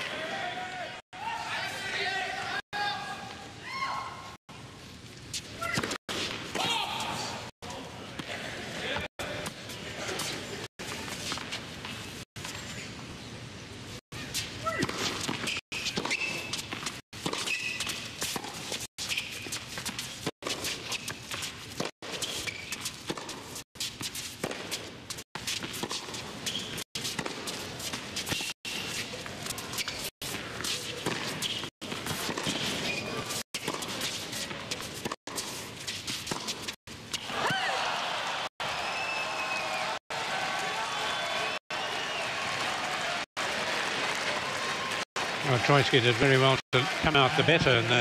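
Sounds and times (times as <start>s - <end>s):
footsteps and shoe squeaks: 10.2s - 13.1s, 14.2s - 37.2s
rackets striking tennis ball: 14.6s - 37.5s.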